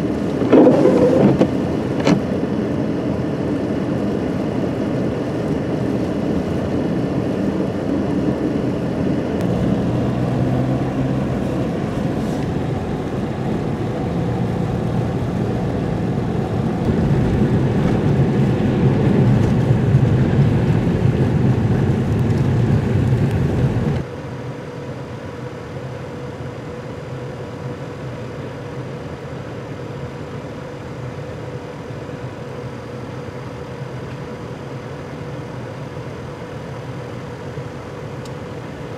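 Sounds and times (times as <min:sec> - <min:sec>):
loader whine: 0:00.0 - 0:02.4, 0:05.4 - 0:24.0
steady engine hum: 0:00.0 - 0:38.9
traffic noise: 0:03.9 - 0:24.0
truck approaching: 0:09.2 - 0:24.0.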